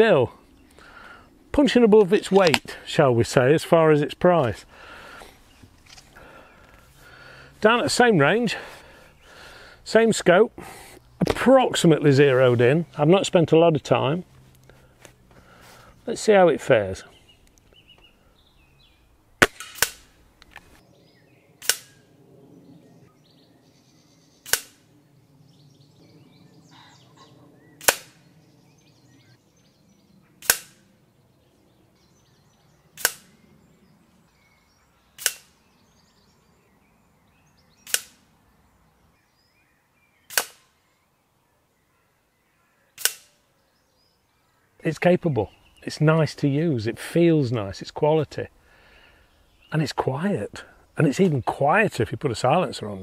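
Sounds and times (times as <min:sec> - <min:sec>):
air rifle firing: 0:19.4 - 0:20.2, 0:21.6 - 0:22.0, 0:24.4 - 0:24.8, 0:27.8 - 0:28.2, 0:30.4 - 0:30.8, 0:33.0 - 0:33.3, 0:35.2 - 0:35.5, 0:37.9 - 0:38.2, 0:40.3 - 0:40.6, 0:43.0 - 0:43.4.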